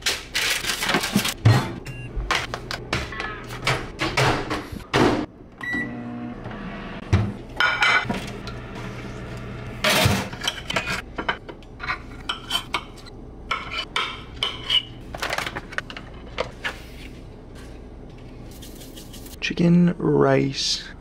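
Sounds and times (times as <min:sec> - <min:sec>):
dishes clattering: 0:07.6 - 0:08.2.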